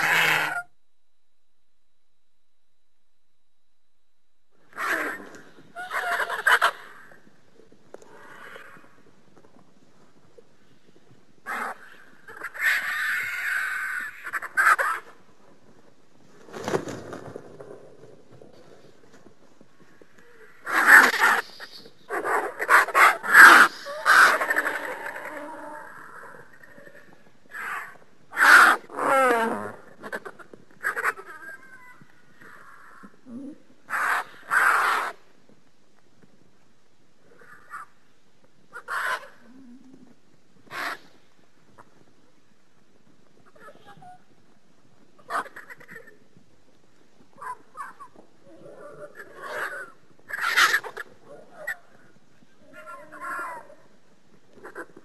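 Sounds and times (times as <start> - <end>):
harsh bird-like calls: 20.2 - 29.1, 29.9 - 35.2, 38.7 - 39.8, 40.6 - 41.2, 47.4 - 51.9.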